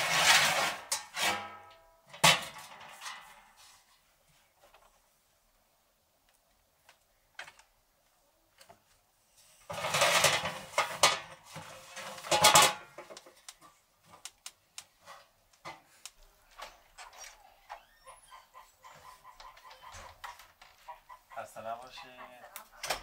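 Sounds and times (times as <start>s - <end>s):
scraping and rustling: 0.0s - 5.1s, 8.6s - 17.6s.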